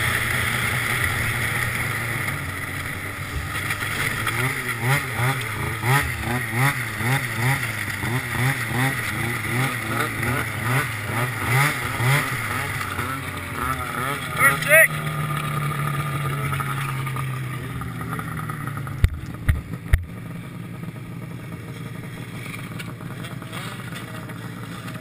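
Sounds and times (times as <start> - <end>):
snowmobile engine running: 0.0 - 25.0.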